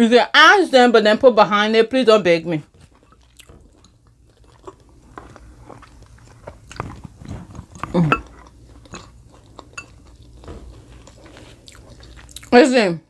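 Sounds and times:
person chewing food: 2.7 - 12.6.

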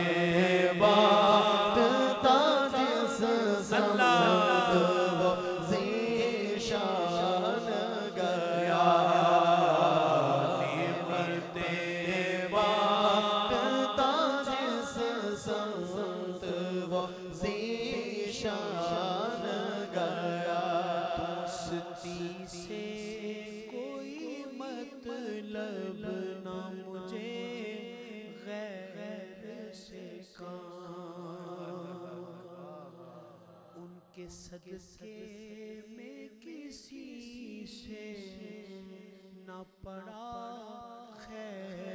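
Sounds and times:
hummed vocal drone: 0.0 - 23.4.

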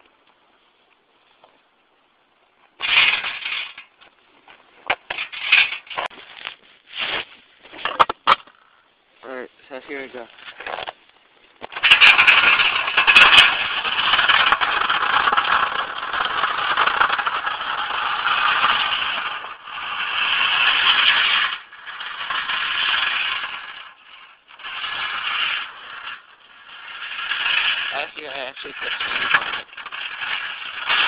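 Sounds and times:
plow scraping pavement: 1.1 - 31.0
toy truck rattling drive noise: 2.8 - 3.9, 11.6 - 31.0.

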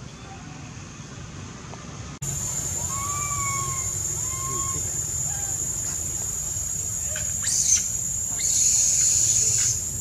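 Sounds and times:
high insect drone: 2.2 - 10.0
infant monkey screaming: 2.6 - 5.8, 7.1 - 9.8.

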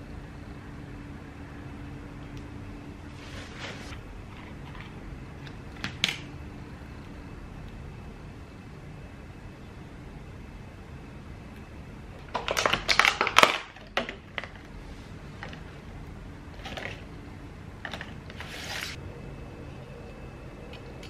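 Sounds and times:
plastic box crackling and clicking: 12.2 - 14.6.

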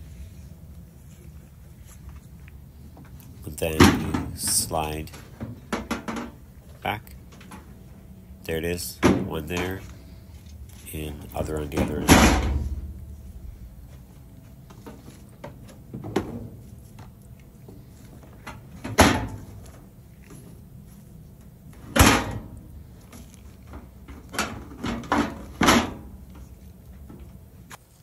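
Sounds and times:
sheet-metal knocks and clunks: 5.4 - 6.4, 24.1 - 26.1.

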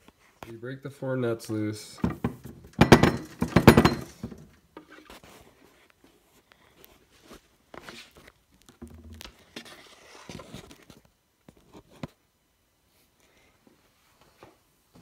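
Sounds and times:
rustling handling noise: 1.4 - 12.2.

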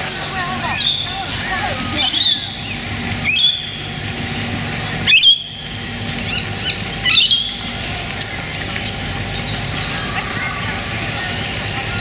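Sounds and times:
low steady background noise: 0.0 - 12.0
bird calling: 0.4 - 7.9.

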